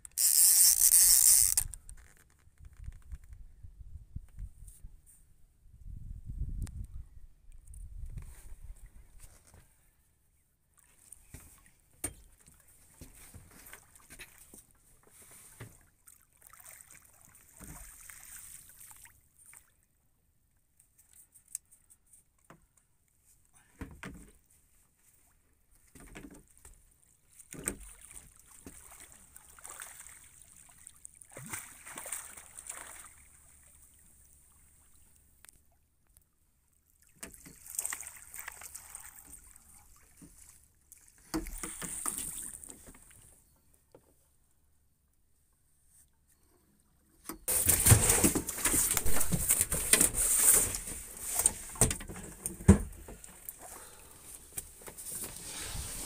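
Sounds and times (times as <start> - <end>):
water splashing against boat: 47.5 - 56.0.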